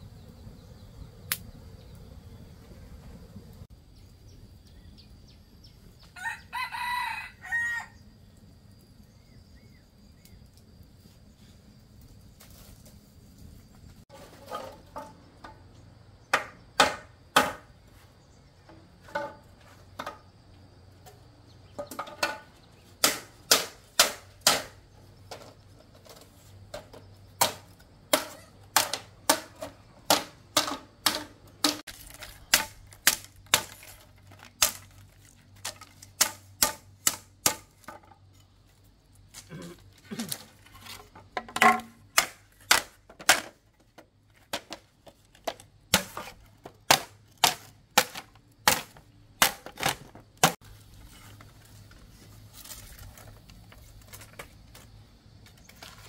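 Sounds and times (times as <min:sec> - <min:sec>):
blade chopping wood: 0:23.0 - 0:24.8, 0:27.4 - 0:35.0, 0:41.4 - 0:43.6, 0:45.4 - 0:50.6.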